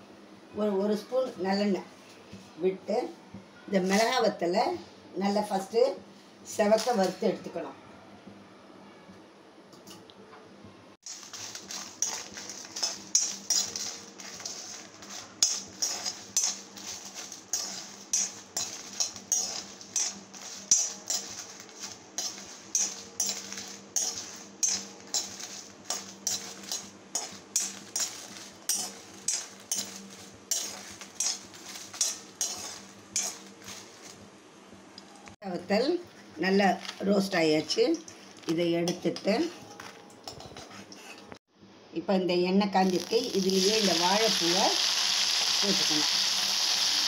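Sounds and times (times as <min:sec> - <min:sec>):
ladle scraping metal pan: 0:11.1 - 0:34.2.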